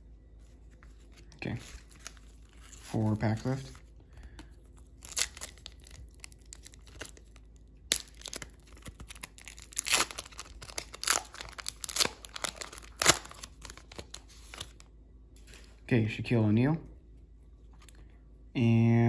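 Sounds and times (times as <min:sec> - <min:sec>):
foil wrapper tearing and crinkling: 0:04.9 - 0:14.8.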